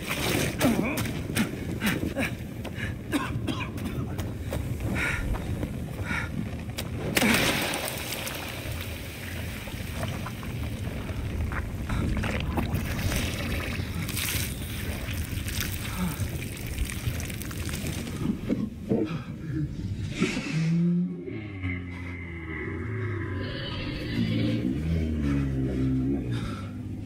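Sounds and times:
deep rumble: 8.7 - 27.0.

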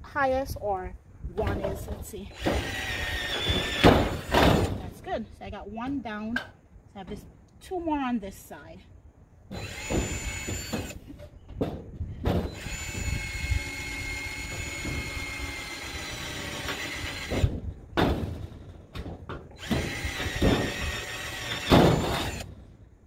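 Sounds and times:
power drill boring through metal: 2.3 - 4.3, 9.5 - 11.0, 12.5 - 17.4, 19.6 - 22.5.

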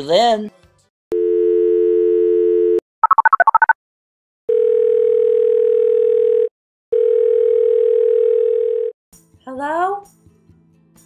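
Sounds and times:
telephone ringback tones: 1.2 - 3.6, 4.5 - 8.9
telephone dial tone: 1.2 - 3.7, 4.5 - 8.9.

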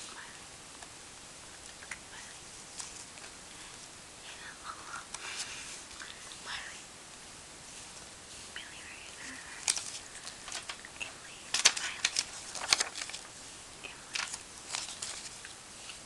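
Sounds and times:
paper crinkling and snapping: 9.6 - 13.3, 13.9 - 16.0.

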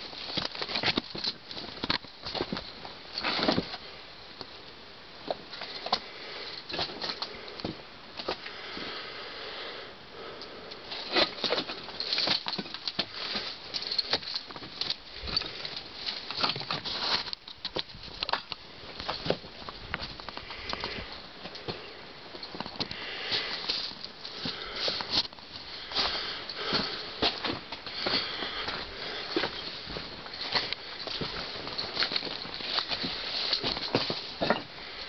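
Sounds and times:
footsteps crunching on stones: 11.0 - 34.9.

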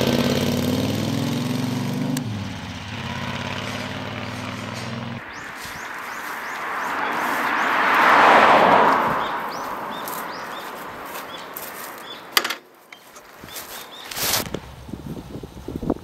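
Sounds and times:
vehicle passing on road: 0.0 - 13.7
small birds chirping: 2.6 - 8.3, 8.9 - 14.4.

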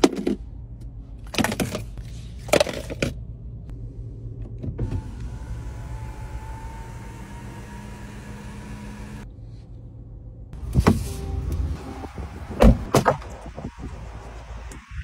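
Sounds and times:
sunroof motor whirring: 4.9 - 9.2
car door shutting: 10.6 - 11.4, 12.5 - 13.7.

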